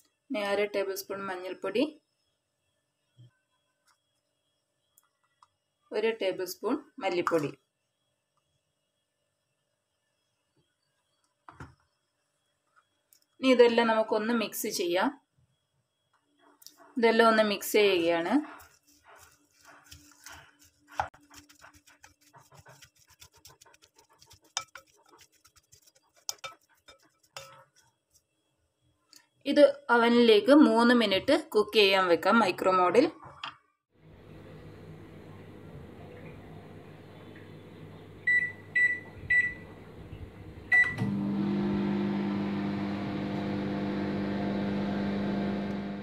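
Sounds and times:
wooden spatula scraping glass bowl: 18.4 - 27.9
microwave oven humming: 34.0 - 46.0
microwave keypad beeps: 38.2 - 39.9, 40.7 - 41.1.

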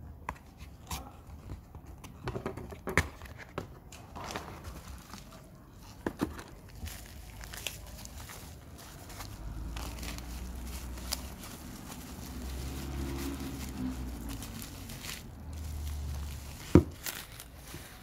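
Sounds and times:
plastic wrap crinkling: 4.2 - 18.0.

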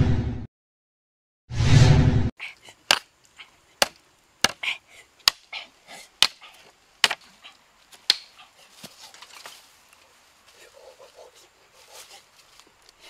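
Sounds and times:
blade chopping bamboo: 3.8 - 4.6, 5.2 - 5.5, 6.2 - 7.3.

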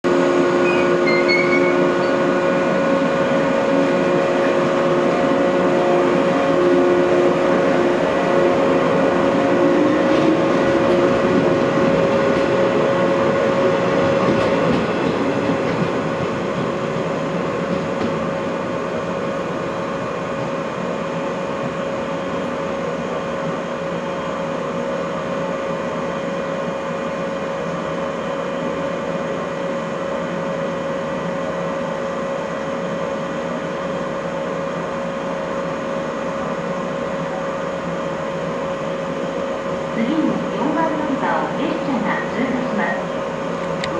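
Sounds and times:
electric train pulling away: 0.1 - 24.6.

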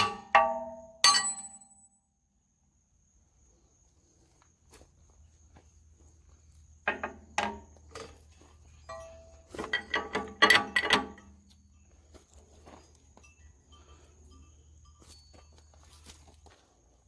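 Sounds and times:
metal clinks and knocks: 0.0 - 1.9, 6.8 - 16.5.

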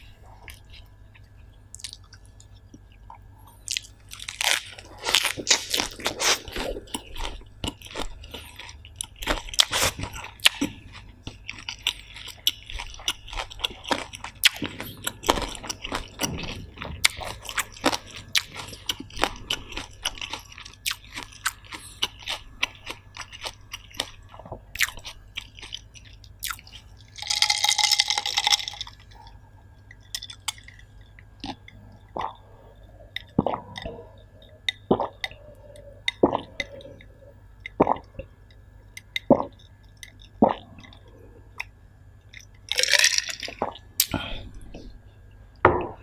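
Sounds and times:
person chewing wetly: 0.3 - 45.0
gulps of drink swallowed: 33.1 - 35.4, 36.0 - 37.1, 37.7 - 38.3.

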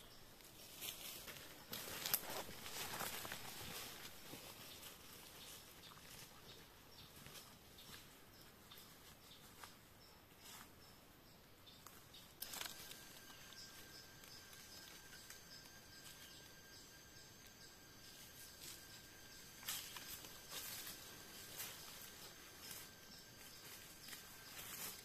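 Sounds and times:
footsteps rustling through leaves: 0.4 - 8.2, 12.4 - 16.4, 18.1 - 25.0
faint steady high tone: 12.4 - 25.0.

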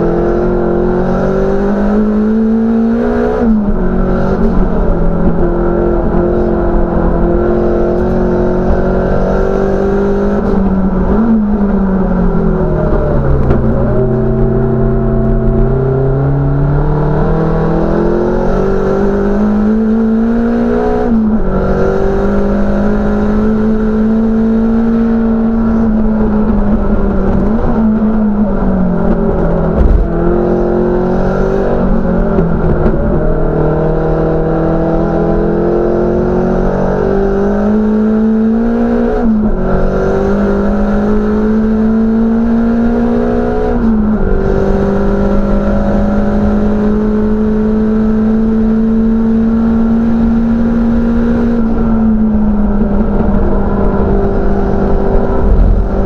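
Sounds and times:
race car engine revving: 0.0 - 56.0
short thump: 29.1 - 30.2.

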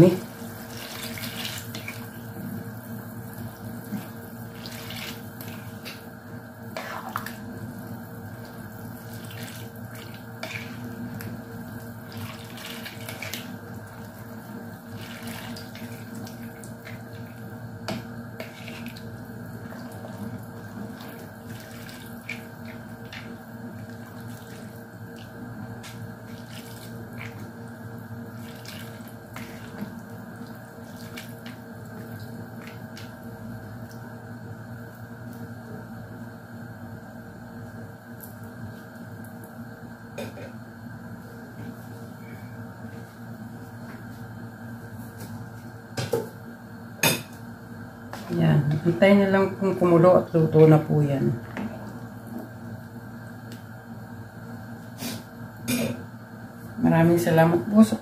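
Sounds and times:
steady hum: 0.0 - 58.0
liquid sloshing in pot: 0.2 - 2.4, 3.4 - 34.0.

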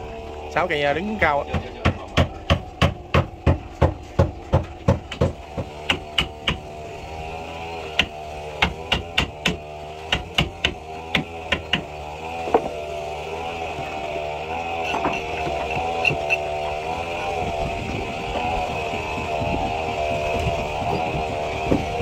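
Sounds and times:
motor running: 0.0 - 22.0
hammer knocking on wood: 1.5 - 6.7, 8.0 - 11.9.

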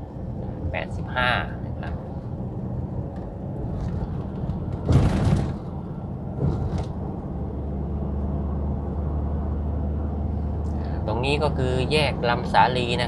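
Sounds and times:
deep engine hum: 0.0 - 13.0
engine and road drone: 0.0 - 13.0.

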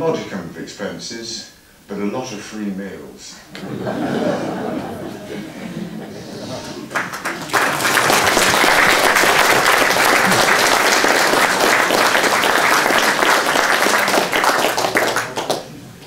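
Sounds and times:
audience applauding: 6.6 - 15.8.

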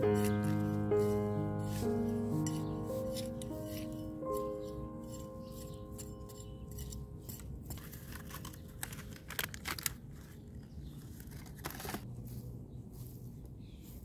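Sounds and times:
hand trowel scraping soil: 0.0 - 14.0
rustling of plant root ball: 6.9 - 14.0.

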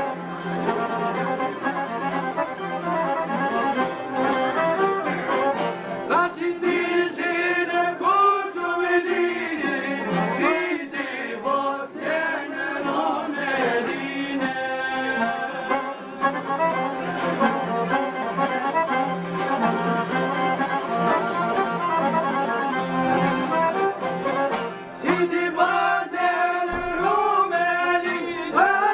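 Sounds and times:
accordion: 0.0 - 28.9
strummed lutes: 0.0 - 28.9
men singing folk song: 6.0 - 16.6, 25.0 - 28.9.

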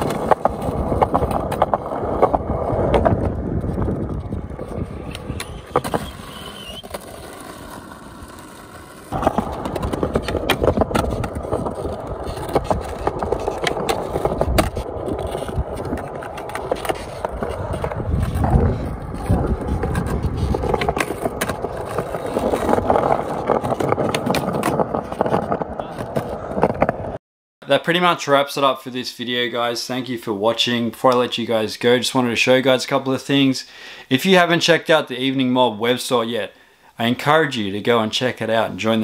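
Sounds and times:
skateboard clacking: 0.0 - 27.2
skateboard trucks grinding: 0.0 - 27.2
skateboard wheels rolling on concrete: 0.0 - 33.5.

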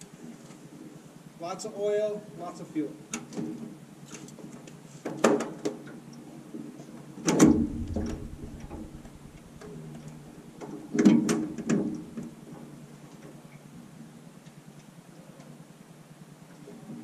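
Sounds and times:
clunks and rattles: 7.3 - 10.2.

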